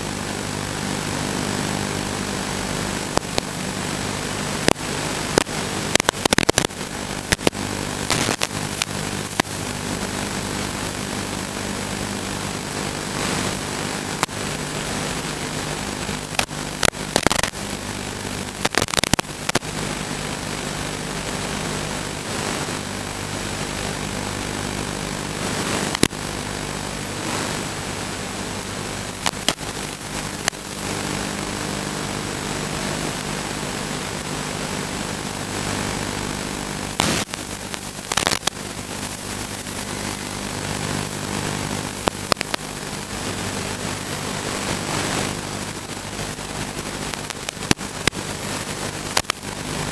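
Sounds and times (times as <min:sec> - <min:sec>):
radio static hiss: 0:00.0 - 0:49.9
sharp signal crackles: 0:07.3 - 0:09.6.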